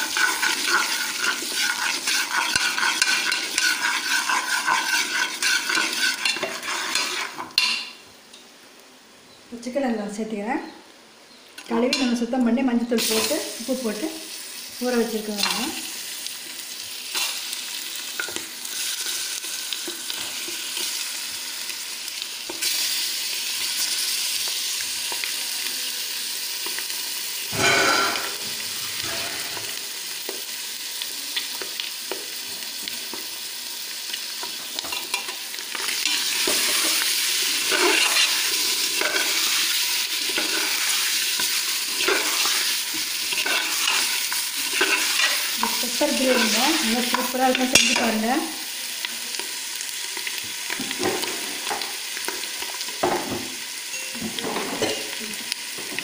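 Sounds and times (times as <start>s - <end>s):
steel spoon scraping a pot: 0.0s - 7.9s, 36.0s - 47.2s
chicken sizzling in oil: 0.0s - 8.0s, 12.9s - 56.0s.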